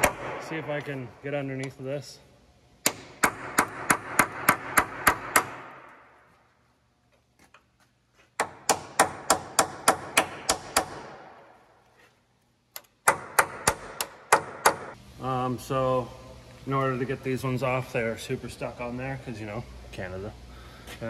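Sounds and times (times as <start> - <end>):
hammer striking steel punch: 0.0 - 0.7, 2.8 - 5.8.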